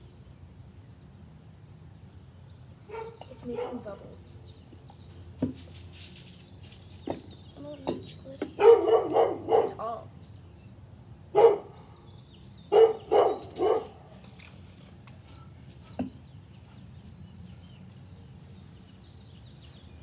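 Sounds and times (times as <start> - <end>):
dog barking: 2.9 - 3.9, 8.6 - 10.0, 11.4 - 11.8, 12.7 - 14.0.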